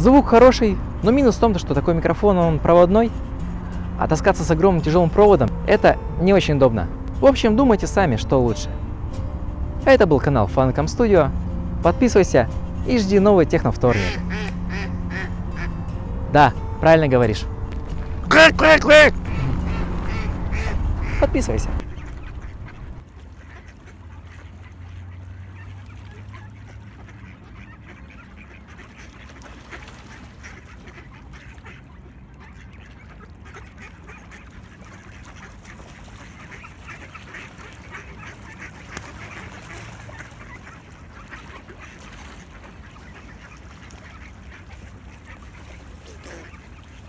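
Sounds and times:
low rumble: 0.0s - 23.0s
ducks quacking: 0.0s - 47.0s.

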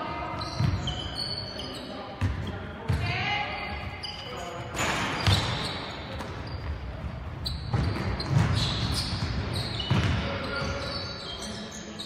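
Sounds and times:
trainers squeaking on floor: 0.2s - 12.0s
basketball bouncing on wooden floor: 7.0s - 10.2s.

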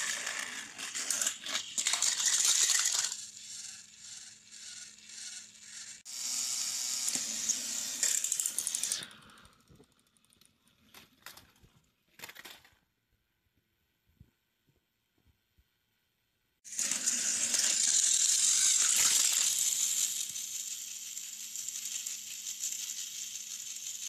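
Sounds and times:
plastic toy trains clattering: 0.0s - 5.8s, 8.0s - 12.8s, 16.8s - 24.0s
toy motor humming: 0.0s - 10.4s, 16.7s - 24.0s.

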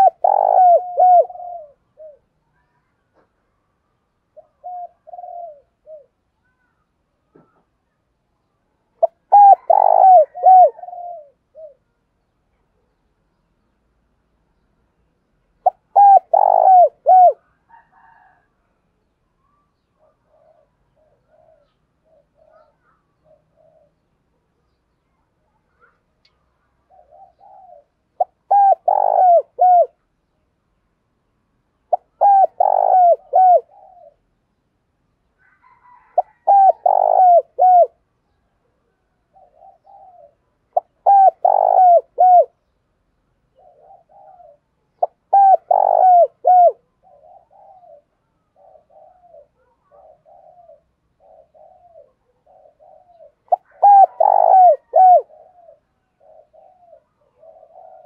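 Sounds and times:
dove cooing: 0.0s - 2.8s, 4.3s - 6.8s, 8.9s - 12.0s, 15.6s - 18.5s, 20.0s - 24.7s, 26.6s - 30.0s, 31.8s - 34.4s, 35.4s - 42.7s, 43.5s - 58.0s.

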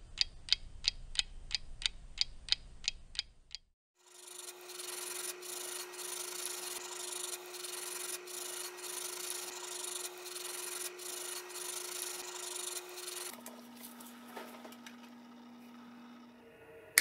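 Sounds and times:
sandpaper rubbing on metal: 4.3s - 13.3s.

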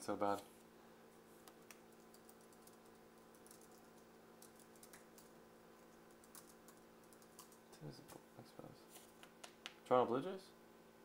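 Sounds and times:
computer keyboard typing: 1.5s - 7.6s.

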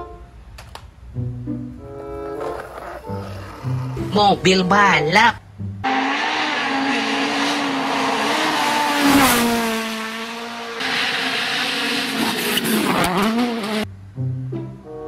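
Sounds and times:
rally car engine at high revs: 5.8s - 13.9s.

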